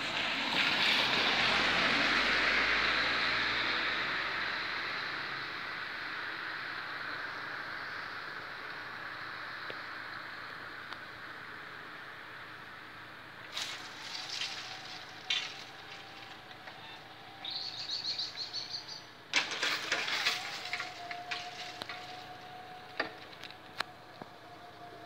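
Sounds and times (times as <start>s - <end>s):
barrier motors whining: 13.4s - 25.0s
bird trilling: 16.8s - 19.1s.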